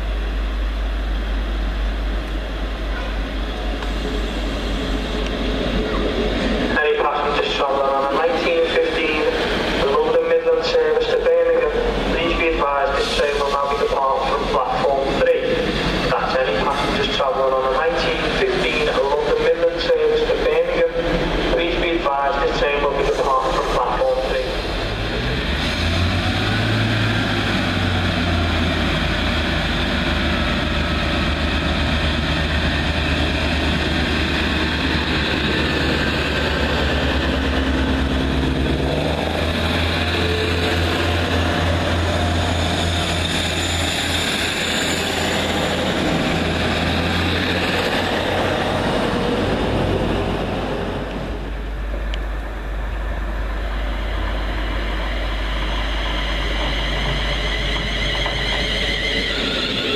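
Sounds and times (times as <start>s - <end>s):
diesel engines droning: 0.0s - 59.9s.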